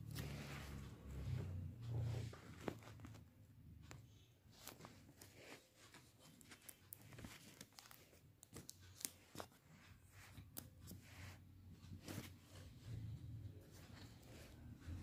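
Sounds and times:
paper rustling and tapping: 2.4s - 11.0s.

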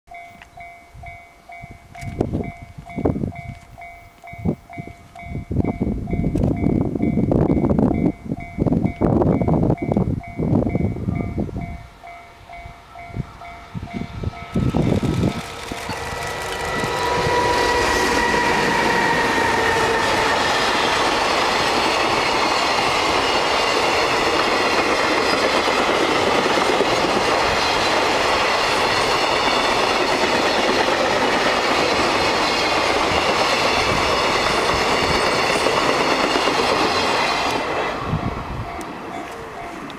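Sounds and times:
locomotive passing: 11.3s - 39.9s.

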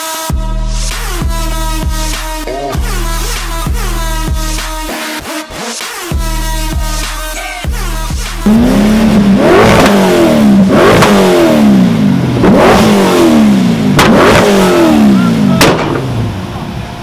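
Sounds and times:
car engine revving: 6.2s - 17.0s
exhaust backfire bangs: 8.4s - 16.8s.

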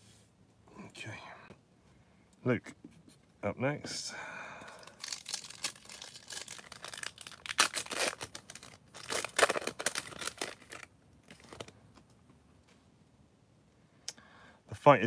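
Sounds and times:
foil wrapper tearing and crinkling: 4.7s - 11.8s.

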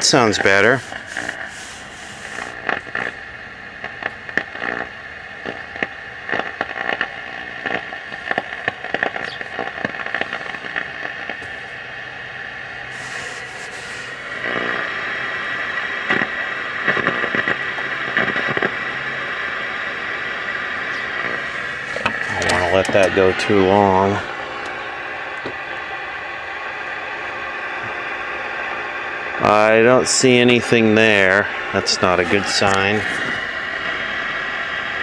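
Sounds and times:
television static hiss with crackles: 0.0s - 35.0s.

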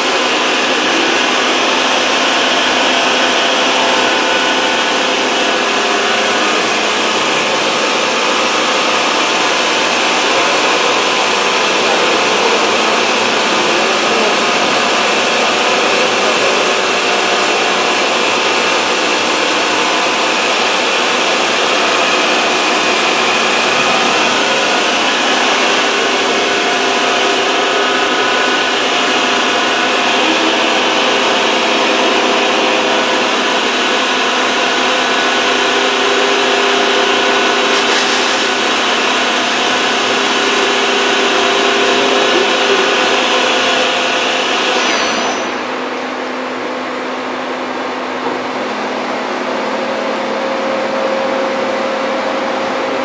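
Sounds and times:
coolant hiss: 0.0s - 45.4s
metal machining noise: 0.0s - 53.0s.

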